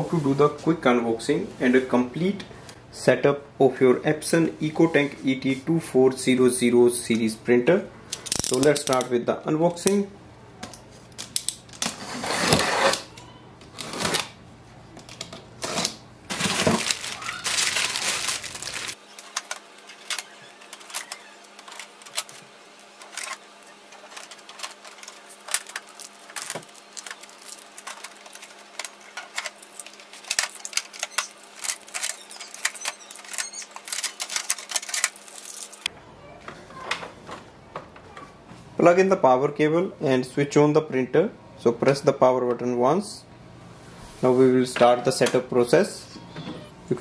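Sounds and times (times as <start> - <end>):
cardboard scraping and rustling: 11.8 - 13.1, 15.6 - 35.9
tape peeling off plastic: 15.0 - 35.9.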